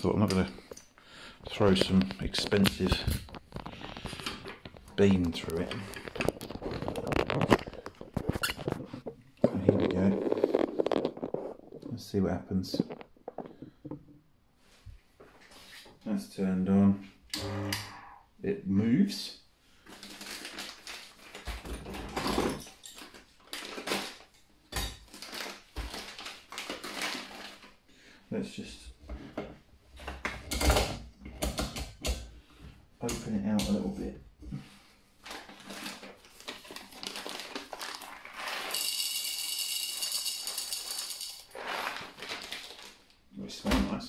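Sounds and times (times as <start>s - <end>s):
plastic bag rustling: 1.5s - 12.0s, 19.8s - 24.3s, 25.0s - 27.8s, 34.8s - 43.3s
coffee beans rattling into hopper: 37.8s - 42.2s.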